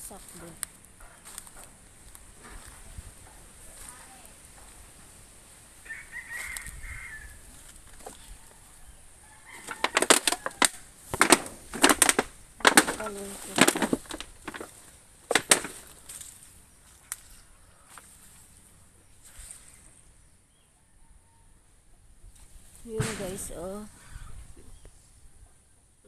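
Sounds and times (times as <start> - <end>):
leaves and branches crackling: 0.0 - 20.3, 22.2 - 24.2.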